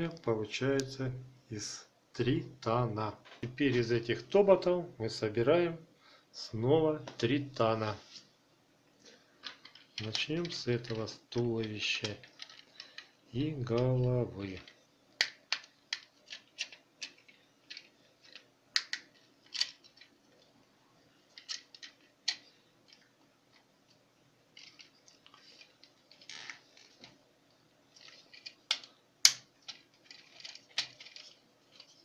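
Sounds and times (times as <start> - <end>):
plastic scraping rustles: 11.8 - 13.2, 24.5 - 27.2, 29.6 - 32.0
plastic toy clicking and snapping: 15.2 - 20.1, 28.0 - 31.9.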